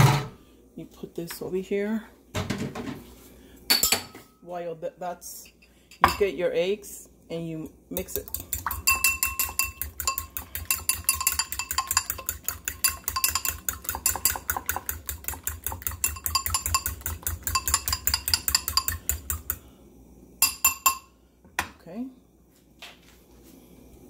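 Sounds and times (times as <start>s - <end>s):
eggs beaten in ceramic bowl: 8.0s - 19.6s.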